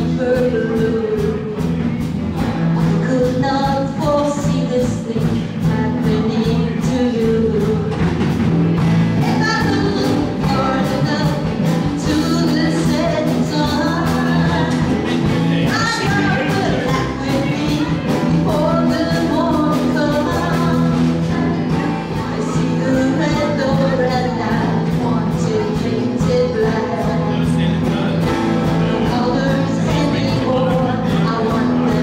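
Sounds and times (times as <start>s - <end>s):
electric bass guitar: 0.0s - 32.0s
live band with singing: 0.0s - 32.0s.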